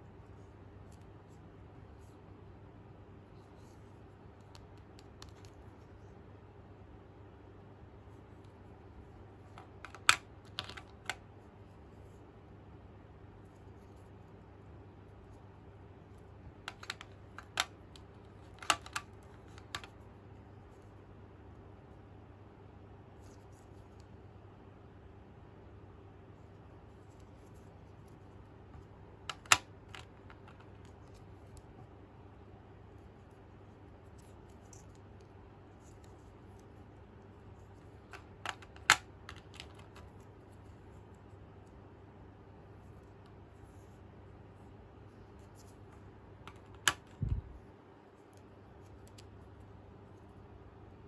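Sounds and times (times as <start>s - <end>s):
plastic toy pieces clicking: 16.7s - 17.7s, 18.5s - 19.9s, 38.1s - 40.1s.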